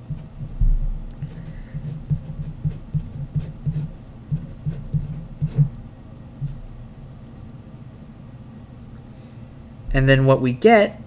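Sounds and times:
pen writing on paper: 0.0s - 0.6s, 1.2s - 5.8s.

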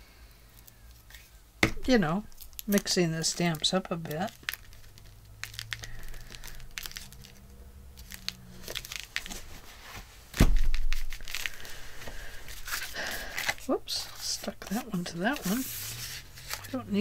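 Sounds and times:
paper rustles and taps: 8.0s - 12.8s
cloth rubbing over paper: 14.1s - 16.8s.

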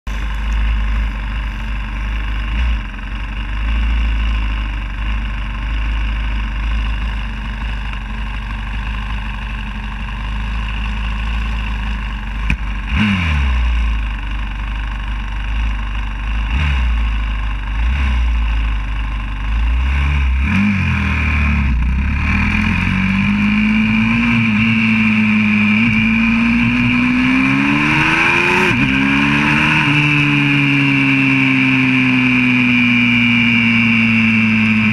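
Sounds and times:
motorbike engine revving: 8.9s - 14.3s, 15.4s - 34.9s.

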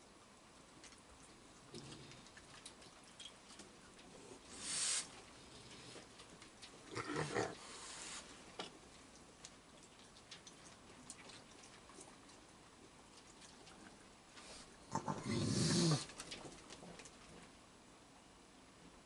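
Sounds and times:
raccoon growling: 6.8s - 8.0s, 14.9s - 16.3s.

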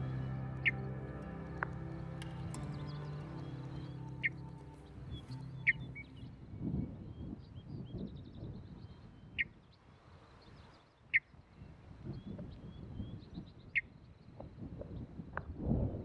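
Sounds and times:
sharp bird chirps: 0.0s - 8.1s
small birds twittering: 0.0s - 15.1s.

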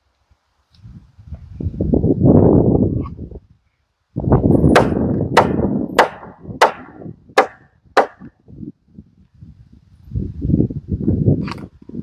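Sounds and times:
hammer driving spikes into wood: 4.7s - 8.2s.

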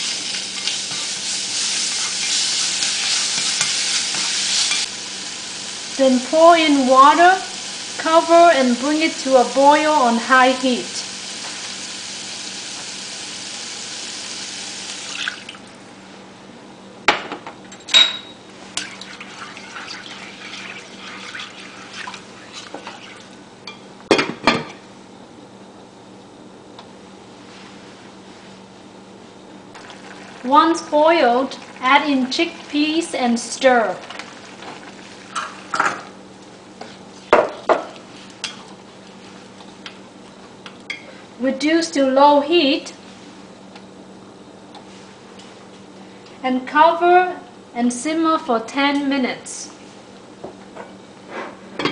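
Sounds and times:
sauce crackling: 0.0s - 6.0s, 29.8s - 35.8s
food sizzling in frying pan: 0.0s - 15.7s, 18.8s - 23.3s, 29.8s - 36.2s.

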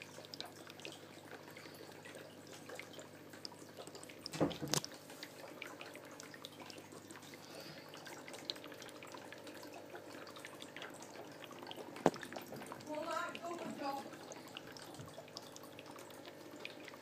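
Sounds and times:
aquarium water trickling and dripping: 0.0s - 17.0s
faint steady hum: 0.0s - 17.0s.

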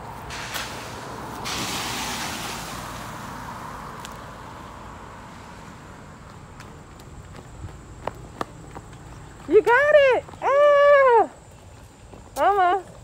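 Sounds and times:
rushing hiss: 0.2s - 5.9s.

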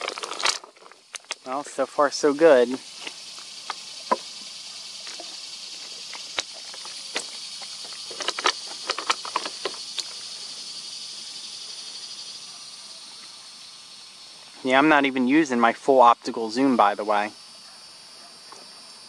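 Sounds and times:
sharp clicks and ticks: 0.0s - 1.6s, 2.7s - 4.3s, 5.0s - 10.3s
high-pitched insect chorus: 0.0s - 19.0s.

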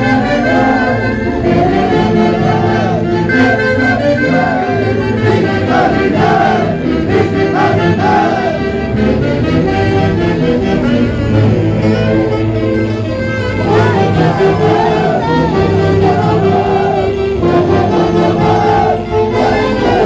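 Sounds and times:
live band dance music: 0.0s - 19.2s
steady bass: 0.0s - 20.0s.

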